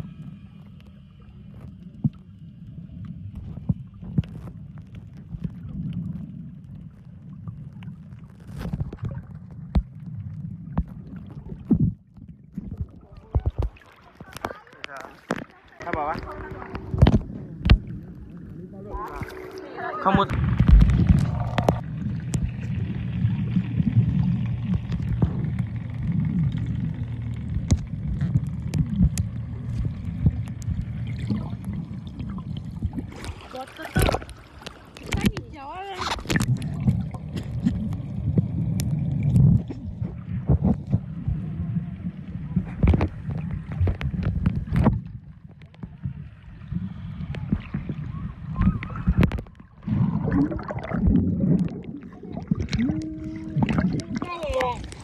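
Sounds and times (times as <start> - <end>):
muffled underwater rumble: 0.0 - 55.0
water rush: 12.8 - 45.0, 45.8 - 55.0.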